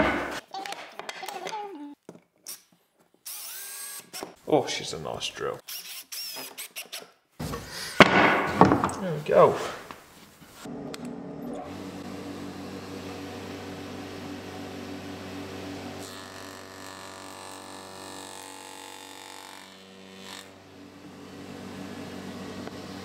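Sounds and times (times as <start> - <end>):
electric motor hum: 10.6 - 23.0.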